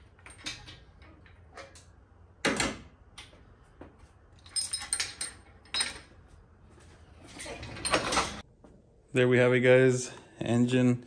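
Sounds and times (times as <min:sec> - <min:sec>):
chain and hook clinking: 0:04.4 - 0:06.1.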